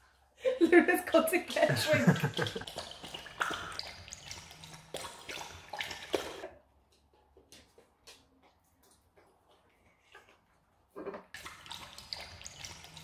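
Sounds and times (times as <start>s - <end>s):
dog lapping water from a bowl: 1.5s - 6.6s, 8.1s - 13.0s.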